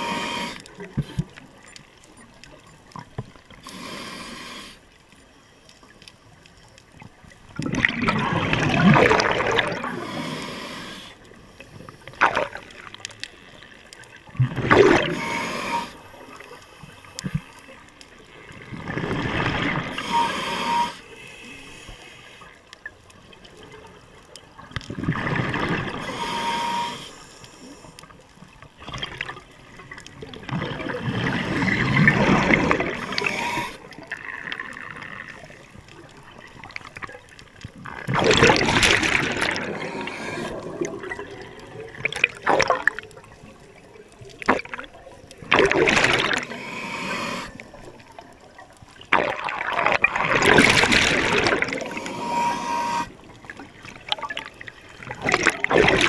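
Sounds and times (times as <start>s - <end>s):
regulator breathing hiss: 0.0s - 0.7s, 3.6s - 4.8s, 9.9s - 12.1s, 15.0s - 17.2s, 19.9s - 22.6s, 26.0s - 28.0s, 32.9s - 33.9s, 39.6s - 40.6s, 46.4s - 47.7s, 51.8s - 53.2s
underwater bubbles bursting out: 7.6s - 10.0s, 14.3s - 15.2s, 18.5s - 20.0s, 24.9s - 26.0s, 28.8s - 35.0s, 37.8s - 43.8s, 44.4s - 46.5s, 47.7s - 52.1s, 53.2s - 56.0s.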